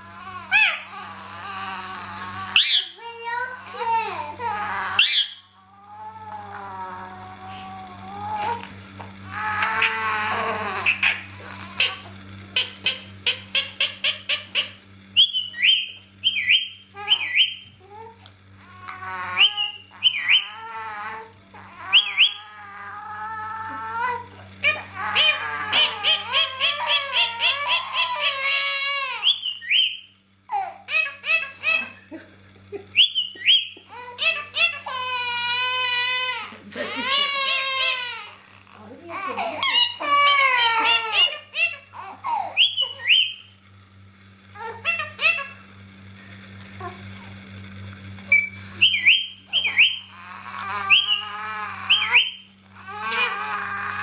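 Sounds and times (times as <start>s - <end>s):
baby laughing: 0.0s - 5.3s, 6.0s - 14.8s, 17.0s - 29.3s, 30.5s - 43.3s, 44.6s - 45.6s, 49.5s - 54.0s
baby squealing: 0.0s - 8.7s, 9.3s - 14.5s, 17.0s - 18.0s, 18.6s - 29.9s, 33.9s - 43.4s, 44.6s - 45.6s, 48.3s - 54.0s
wavering whining voice: 0.0s - 43.6s, 44.5s - 54.0s
parakeet calling: 0.1s - 3.0s, 4.4s - 5.6s, 9.3s - 17.8s, 18.6s - 24.0s, 24.6s - 30.2s, 30.9s - 32.0s, 32.9s - 38.4s, 39.2s - 43.6s, 44.6s - 45.7s, 48.3s - 54.0s.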